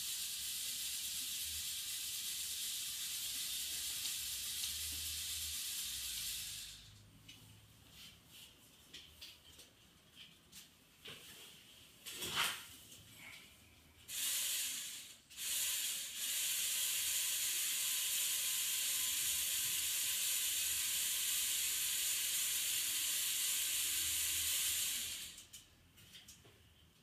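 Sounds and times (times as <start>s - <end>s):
toy electric motor whirring: 0.0s - 7.0s, 14.1s - 25.7s.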